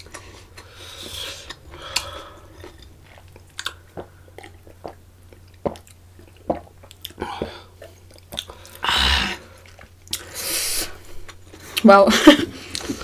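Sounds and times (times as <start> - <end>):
chewing: 0.0 - 10.4
swallowing gulps: 1.5 - 10.2.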